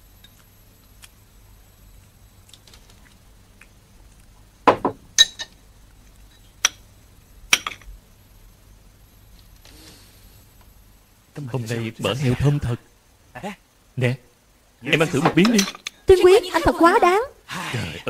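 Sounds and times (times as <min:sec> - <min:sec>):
utensils clinking on porcelain dishes: 0:15.3 - 0:16.0.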